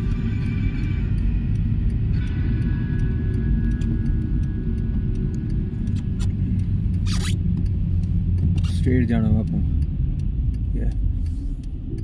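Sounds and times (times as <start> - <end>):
tyre and engine rumble: 0.0 - 12.0
raindrops ticking on windshield: 3.3 - 12.0.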